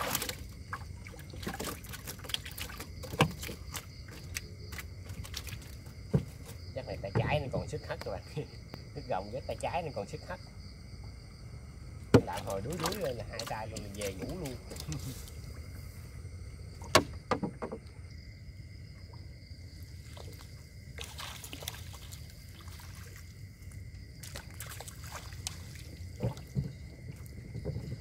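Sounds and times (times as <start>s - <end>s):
water sloshing and trickling: 0.0s - 28.0s
sharp knocks: 16.8s - 17.9s.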